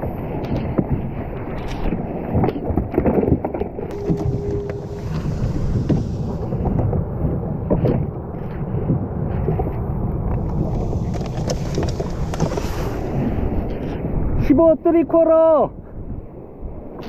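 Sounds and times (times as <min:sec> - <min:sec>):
water slapping on hull: 0:00.0 - 0:13.6
wind buffeting microphone: 0:00.0 - 0:17.0
steady tone: 0:03.9 - 0:07.2.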